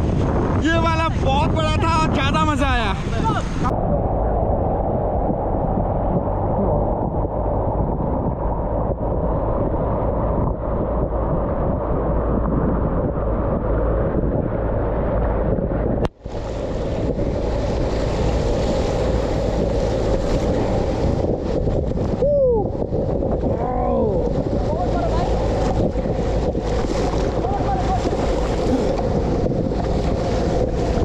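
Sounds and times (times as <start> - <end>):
wind buffeting microphone: 0.0 - 31.0
rushing whitewater: 23.4 - 31.0.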